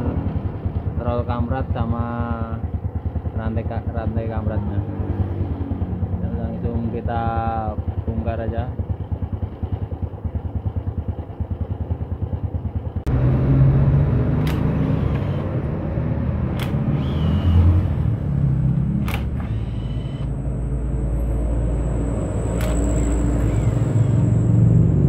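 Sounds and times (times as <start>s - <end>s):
engine rattle: 0.0s - 4.8s, 5.9s - 13.2s, 14.2s - 25.0s
single-cylinder engine idling: 0.0s - 4.8s, 5.8s - 13.1s, 14.4s - 20.7s, 21.9s - 24.7s
cordless impact wrench: 14.3s - 15.6s, 16.4s - 18.0s, 18.8s - 20.3s, 22.5s - 24.4s
sharp clicks: 14.3s - 15.6s, 16.5s - 17.8s, 18.8s - 20.3s, 22.5s - 24.1s.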